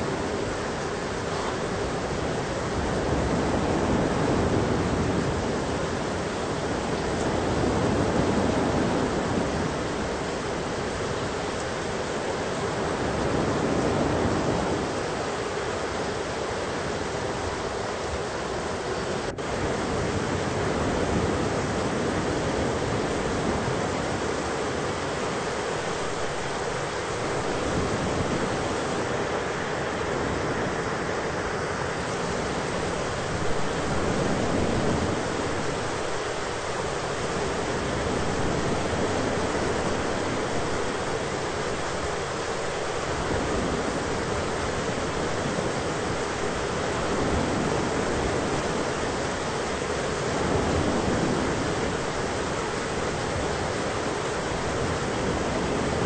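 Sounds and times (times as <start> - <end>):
rain hiss: 0.0 - 56.0
low thunder rumble: 19.2 - 56.0.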